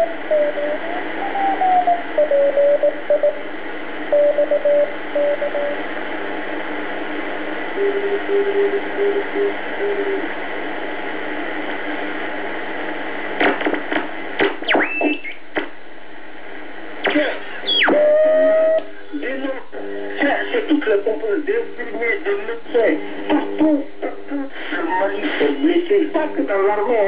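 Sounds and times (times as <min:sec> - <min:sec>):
morse code beat tones: 0:00.0 - 0:03.5, 0:04.1 - 0:05.8, 0:07.8 - 0:10.2
shortwave radio static: 0:00.0 - 0:27.0
radio tuning whistles and crackles: 0:14.4 - 0:15.7, 0:17.0 - 0:19.2.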